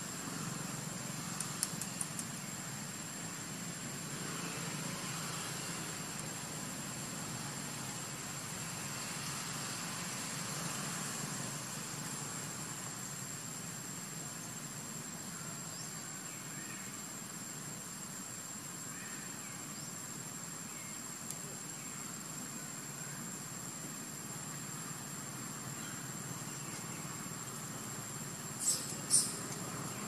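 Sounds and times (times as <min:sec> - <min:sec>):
faint bird chirps: 0:28.6 - 0:30.0.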